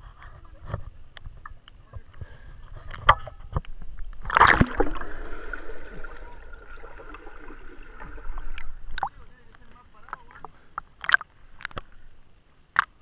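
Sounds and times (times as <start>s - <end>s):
loud splash: 4.3s - 8.2s.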